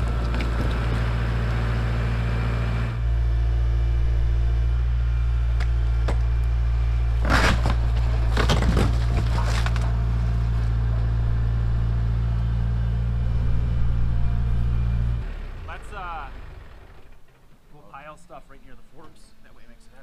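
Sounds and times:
timbers cracking and splintering: 0:00.0 - 0:01.5, 0:05.5 - 0:11.2
tractor diesel engine running: 0:00.0 - 0:20.0.

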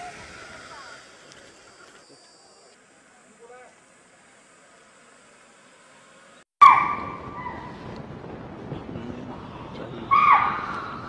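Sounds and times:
wind rumbling on microphone: 0:06.6 - 0:11.0.

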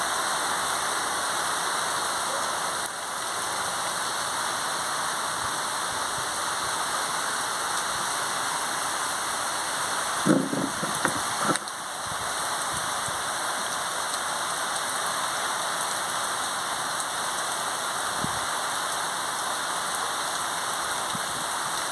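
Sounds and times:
steady rain hiss: 0:00.0 - 0:21.9
short knocks: 0:10.3 - 0:11.6.

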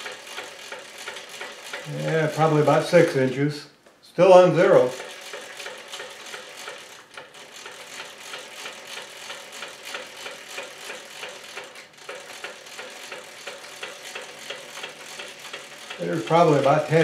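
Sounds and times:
drill press table ratchet clicks: 0:05.0 - 0:16.8.

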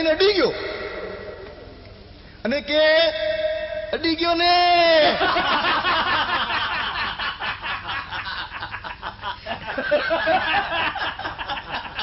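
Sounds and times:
audience laughing: 0:05.1 - 0:12.0.

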